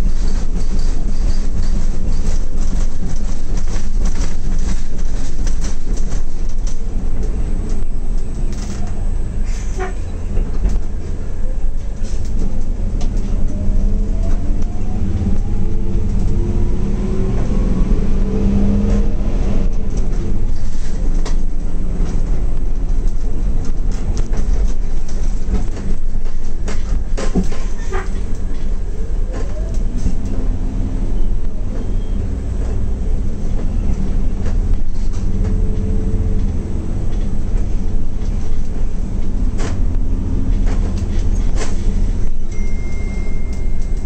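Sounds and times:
bus engine drone: 0:00.0 - 0:44.0
road rumble: 0:00.0 - 0:44.0.

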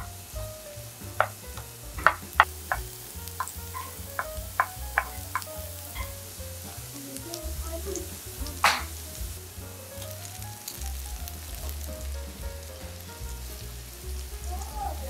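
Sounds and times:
oil sizzling in a frying pan: 0:00.0 - 0:15.0
spatula scraping a pan: 0:03.4 - 0:04.3.

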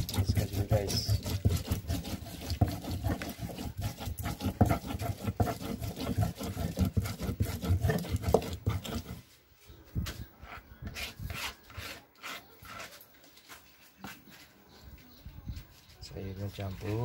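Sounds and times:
pestle grinding in a mortar: 0:00.0 - 0:09.4, 0:10.4 - 0:13.0.

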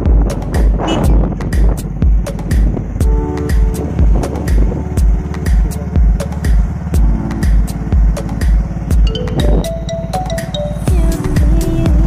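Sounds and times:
deep kick drum: 0:00.0 - 0:09.7, 0:10.9 - 0:12.0
held synth chord: 0:03.0 - 0:12.0.

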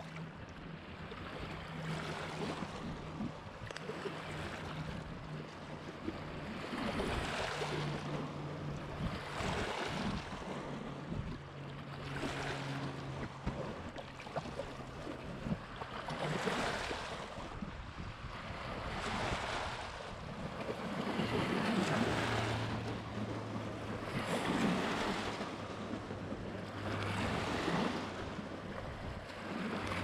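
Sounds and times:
waves breaking on pebble shore: 0:23.8 - 0:25.6.

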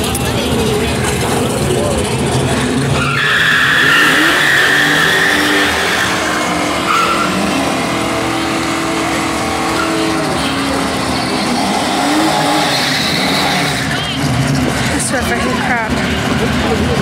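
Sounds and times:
drag racing cars accelerating: 0:00.0 - 0:17.0.

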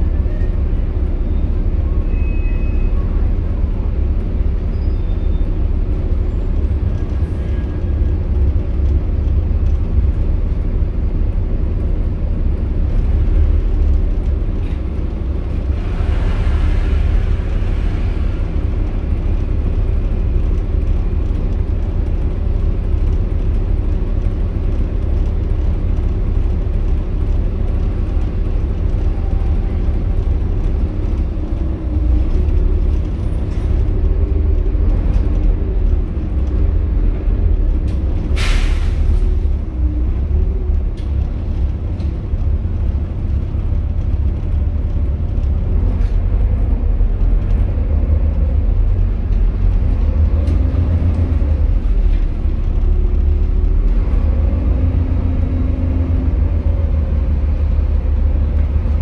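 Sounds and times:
bus diesel engine rumble: 0:00.0 - 0:59.0
air brake hiss: 0:38.4 - 0:39.1.

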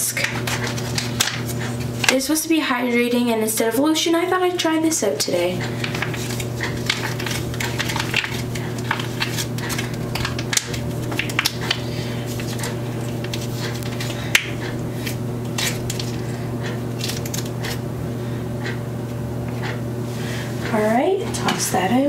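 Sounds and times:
foil sachet crinkling: 0:00.1 - 0:01.9, 0:05.6 - 0:17.8.

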